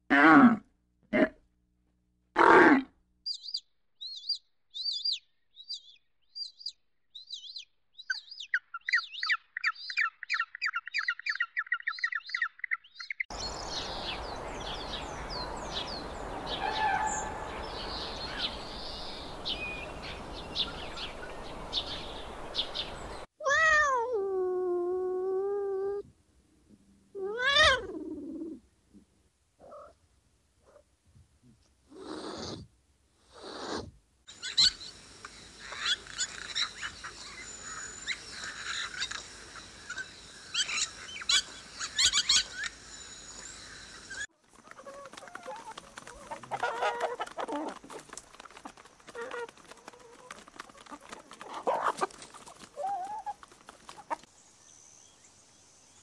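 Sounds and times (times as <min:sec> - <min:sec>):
cat meowing: 0:23.4 - 0:24.3, 0:27.2 - 0:27.9
steady hiss: 0:31.9 - 0:44.3
bird chirps and trills: 0:34.3 - 0:44.3.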